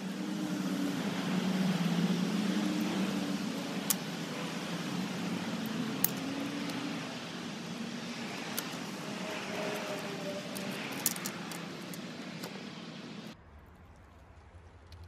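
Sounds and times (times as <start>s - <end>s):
low mechanical hum: 0.0s - 15.0s
bike parts clicking: 9.7s - 12.6s.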